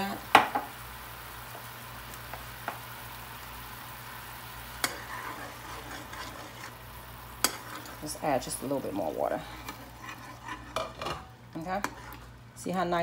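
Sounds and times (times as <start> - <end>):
sauce sizzling in a pan: 0.0 - 12.6
spoon scraping through sauce: 9.6 - 11.0, 11.8 - 12.4.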